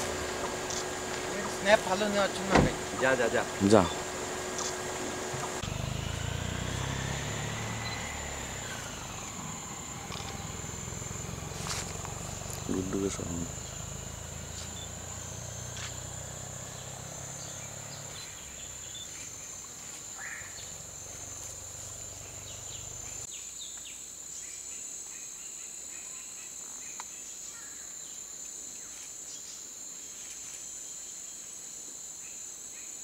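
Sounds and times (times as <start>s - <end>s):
low hum: 0.0s - 23.3s
insects droning: 0.0s - 33.0s.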